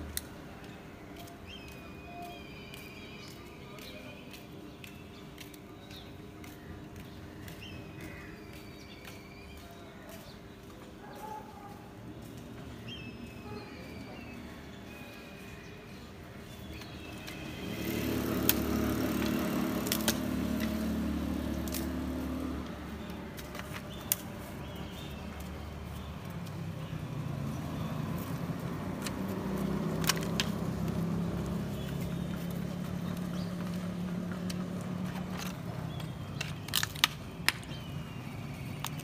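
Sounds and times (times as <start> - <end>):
vehicle engines passing: 11.8 - 39.0
firewood sticks snapping: 18.4 - 25.6, 28.1 - 33.8, 34.4 - 37.9.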